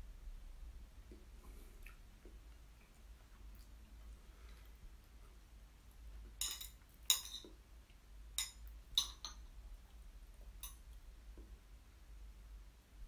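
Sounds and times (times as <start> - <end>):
metal chopsticks clinking on bowl: 6.4 - 7.5, 8.4 - 9.4, 10.6 - 10.8.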